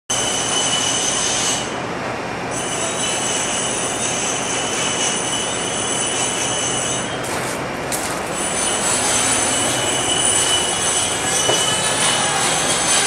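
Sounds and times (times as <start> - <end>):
air compressor rushing: 6.4 - 13.0
high steady whining tones: 8.3 - 13.0.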